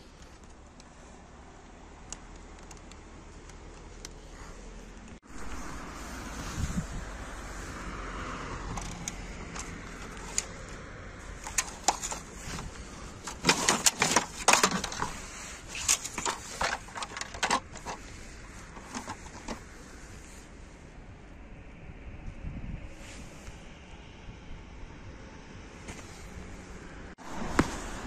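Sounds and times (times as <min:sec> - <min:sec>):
plastic toys clicking and knocking: 0:13.3 - 0:18.0.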